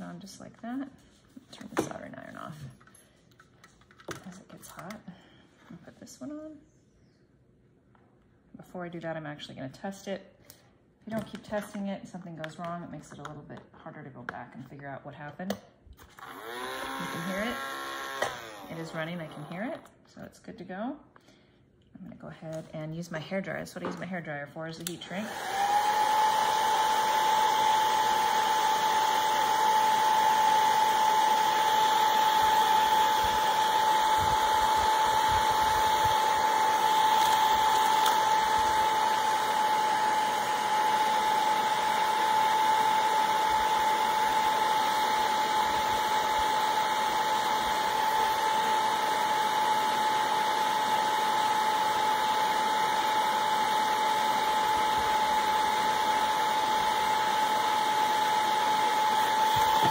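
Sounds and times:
hair dryer running: 16.0s - 19.8s, 24.0s - 59.9s.

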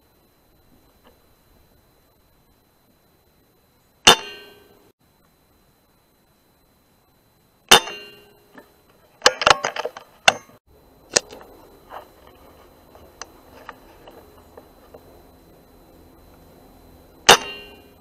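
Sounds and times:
clicks and knocks: 7.7s - 15.1s.

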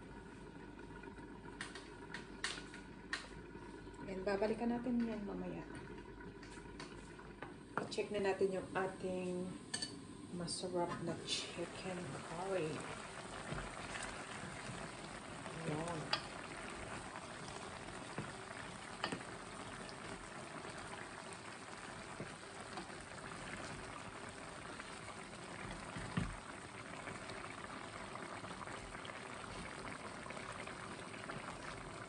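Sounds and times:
curry bubbling in a pan: 0.0s - 32.0s
wooden spoon stirring: 13.3s - 20.2s.

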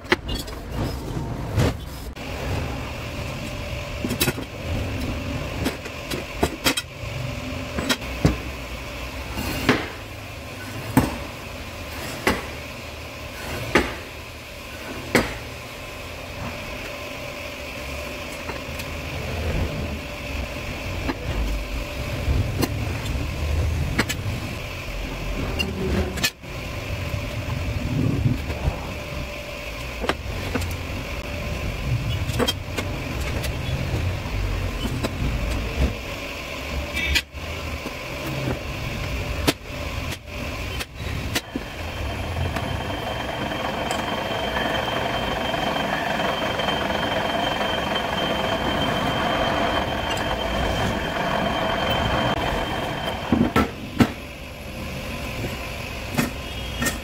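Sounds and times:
low mechanical rumble: 0.2s - 56.8s
drill press drilling metal: 41.3s - 53.6s.

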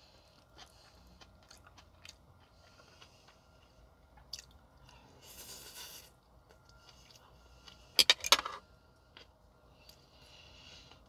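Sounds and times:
crunchy chewing: 0.0s - 7.9s.

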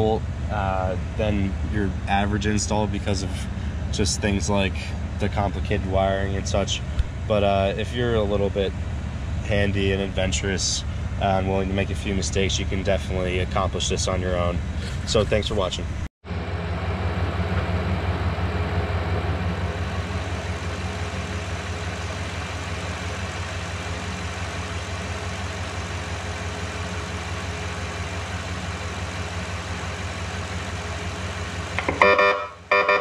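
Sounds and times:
truck engine idling: 0.0s - 33.0s
horn blast: 31.8s - 33.0s.

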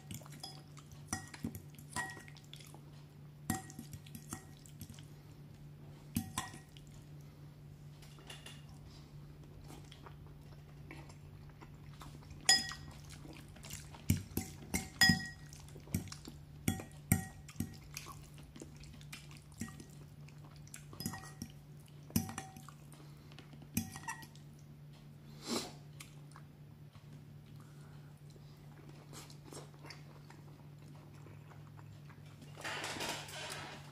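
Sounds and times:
fork clinking on ceramic bowl: 0.4s - 2.4s, 12.5s - 12.9s, 14.4s - 15.5s, 21.0s - 21.5s, 23.8s - 24.3s.

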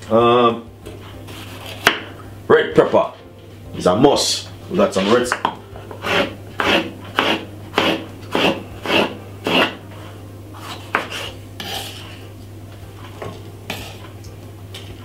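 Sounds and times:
knife slicing on wooden board: 1.2s - 2.1s.

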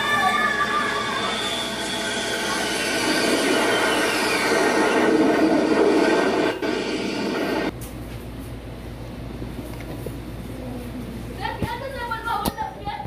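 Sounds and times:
shrill screams: 0.0s - 5.2s
audience cheering: 0.0s - 6.6s.

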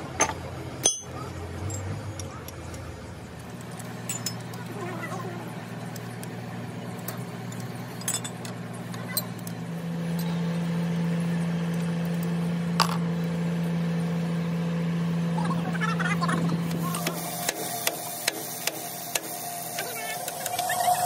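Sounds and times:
machine drone: 0.0s - 21.0s
wrench clinking on metal: 0.2s - 2.8s, 4.0s - 4.6s, 7.5s - 9.5s.

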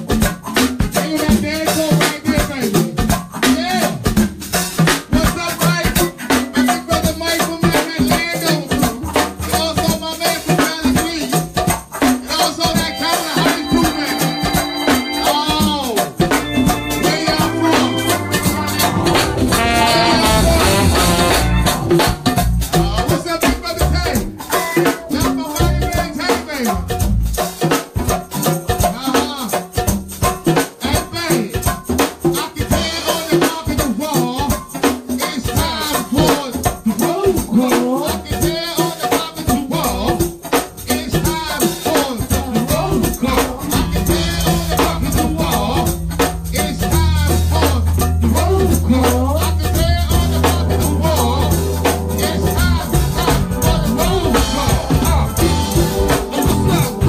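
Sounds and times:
drums and shakers groove: 0.0s - 57.0s
melodic band parts: 12.1s - 25.7s, 41.3s - 57.0s.

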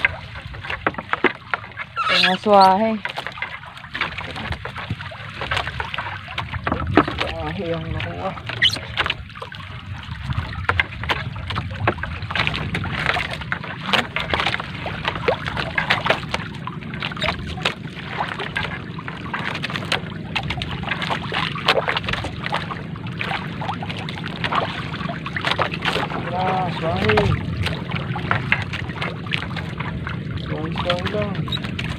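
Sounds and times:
water splashing and dripping: 0.0s - 31.9s
steady low rumble: 9.1s - 21.4s, 22.0s - 31.9s.

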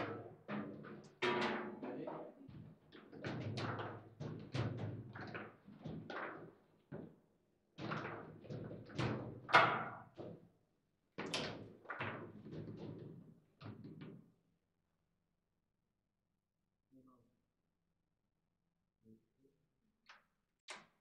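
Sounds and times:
foosball knocks and clacks: 0.0s - 1.9s, 2.6s - 7.2s, 7.8s - 10.4s, 11.2s - 14.2s.

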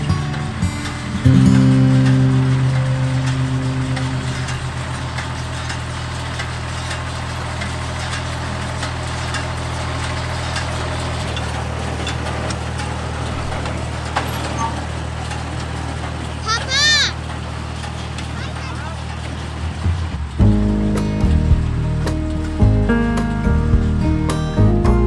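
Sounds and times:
tractor engine running: 0.0s - 25.0s.

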